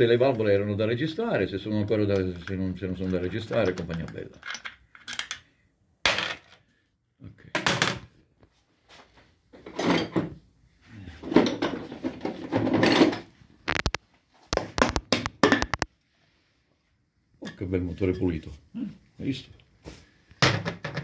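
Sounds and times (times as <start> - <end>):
metal parts clattering and scraping: 11.2 - 13.3.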